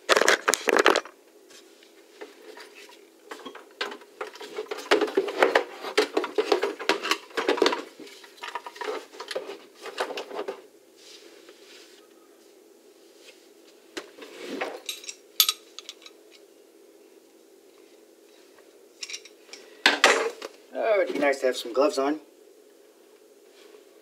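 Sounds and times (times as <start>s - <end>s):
hard objects clattering in cabinet: 3.3s - 10.6s.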